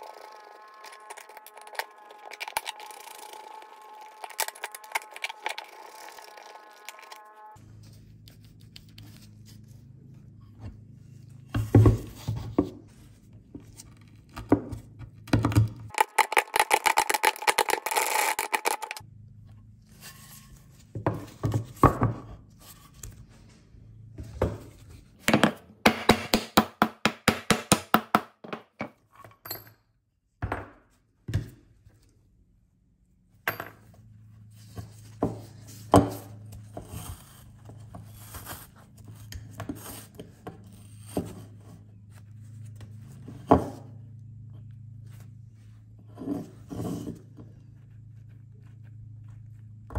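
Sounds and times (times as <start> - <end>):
metal parts knocking and scraping: 15.9 - 19.0.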